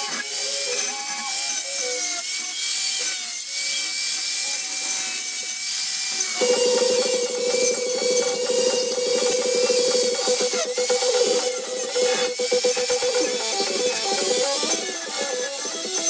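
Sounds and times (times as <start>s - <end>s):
angle grinder grinding steel: 0.0s - 16.0s
electronic music with buzzing beat: 6.4s - 16.0s.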